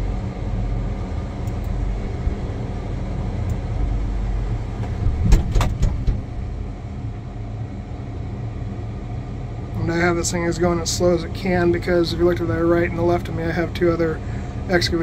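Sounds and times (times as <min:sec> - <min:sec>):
diesel engine running: 0:00.0 - 0:15.0
sharp knocks and clicks: 0:04.8 - 0:06.4.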